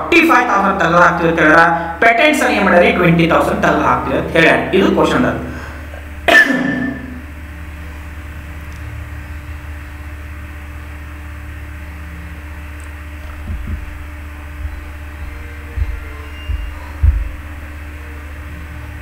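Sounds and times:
low electrical hum with hiss: 0:00.0 - 0:19.0
man coughing: 0:06.3 - 0:07.1
soft low bumps: 0:13.2 - 0:17.7.

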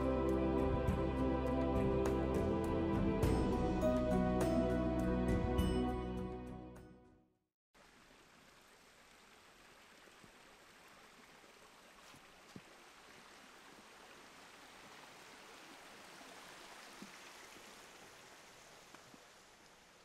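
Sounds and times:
stream flowing over rocks: 0:07.8 - 0:20.0.

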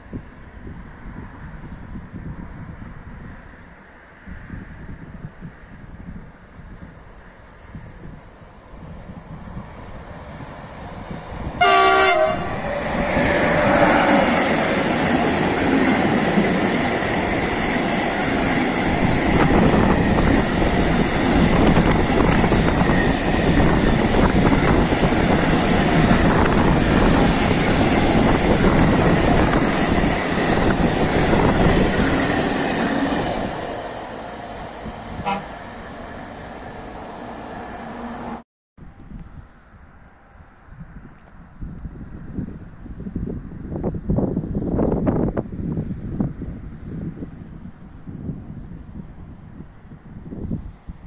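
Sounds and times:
freight train wheel and rail noise: 0:00.0 - 0:51.0
locomotive horn blast: 0:11.6 - 0:13.0, 0:35.2 - 0:35.7.

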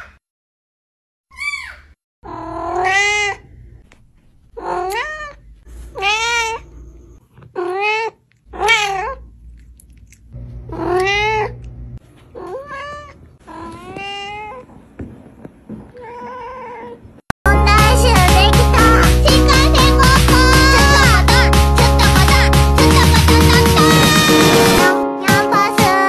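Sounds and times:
cat meowing: 0:01.4 - 0:03.5, 0:04.6 - 0:09.3, 0:10.7 - 0:11.6, 0:12.3 - 0:14.7, 0:15.9 - 0:17.1.

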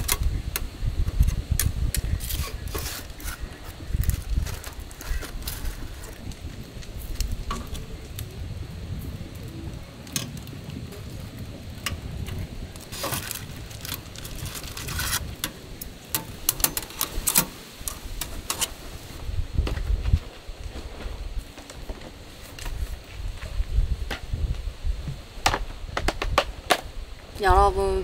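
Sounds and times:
steady low rumble: 0:00.0 - 0:28.0.

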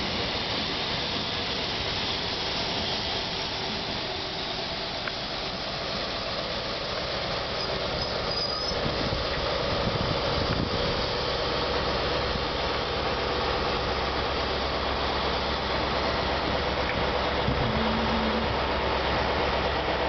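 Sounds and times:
diesel engine humming: 0:00.0 - 0:20.0
wheel-on-rail rumble: 0:00.0 - 0:20.0
high squeal: 0:07.6 - 0:08.8.

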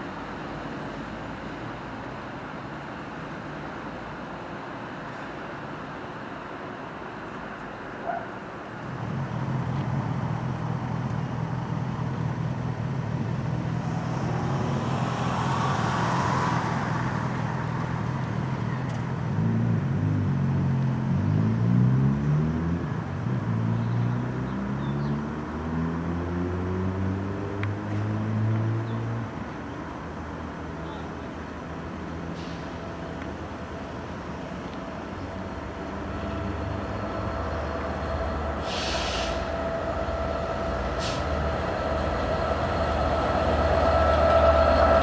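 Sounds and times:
diesel locomotive engine running: 0:30.6 - 0:45.0
high rushing sound: 0:36.2 - 0:45.0.

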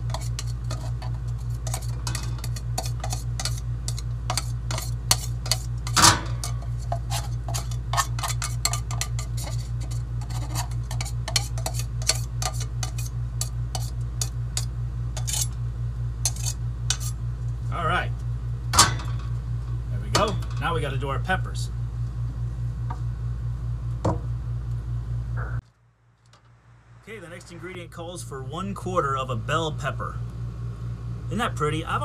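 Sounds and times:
knife scraping and tapping plastic cup: 0:00.0 - 0:15.5
steady low hum: 0:00.0 - 0:32.0.

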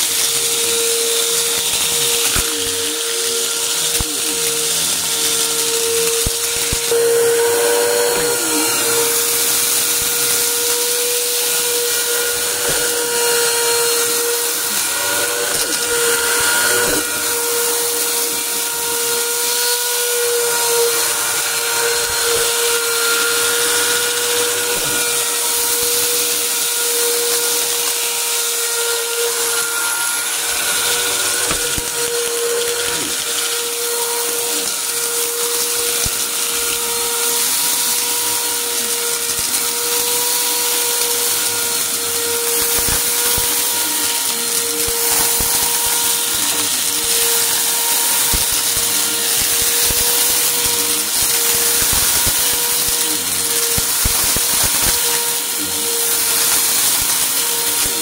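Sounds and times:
debris crunching in vacuum: 0:00.0 - 0:58.0
upright vacuum running on carpet: 0:00.0 - 0:58.0.

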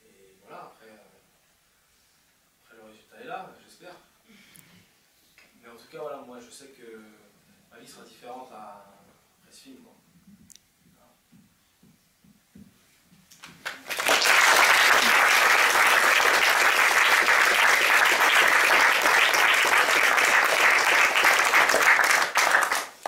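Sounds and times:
audience applauding: 0:13.4 - 0:23.0.

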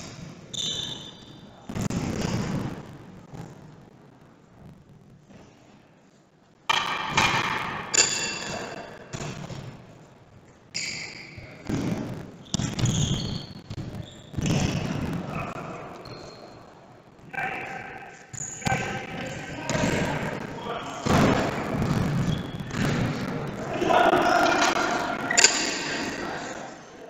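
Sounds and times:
ball thudding in a hall: 0:06.7 - 0:09.9, 0:11.0 - 0:16.6, 0:18.3 - 0:26.6
players shouting: 0:23.2 - 0:27.0.

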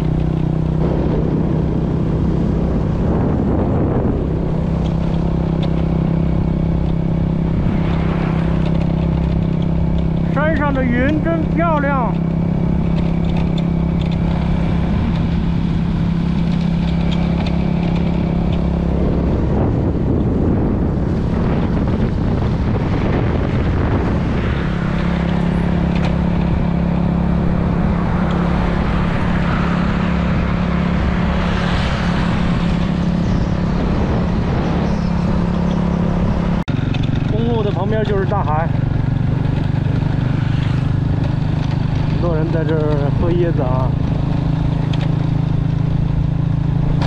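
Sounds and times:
motorcycle engine cruising: 0:00.0 - 0:47.0
wind and road noise: 0:00.0 - 0:47.0.

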